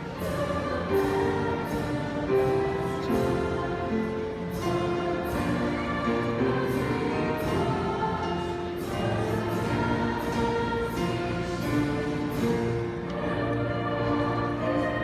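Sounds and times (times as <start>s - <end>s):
choir singing held notes: 0.0s - 15.0s.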